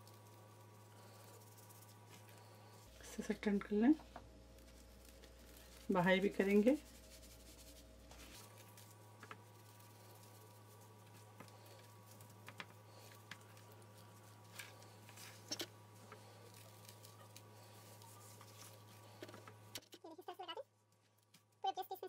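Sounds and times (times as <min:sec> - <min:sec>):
low steady hum: 0:00.0 - 0:22.0
hand rubbing spice into chicken: 0:04.6 - 0:19.6.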